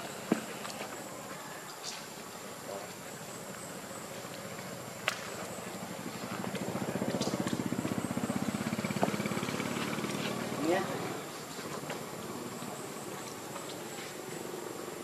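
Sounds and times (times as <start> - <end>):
small engine running: 3.7 - 15.0.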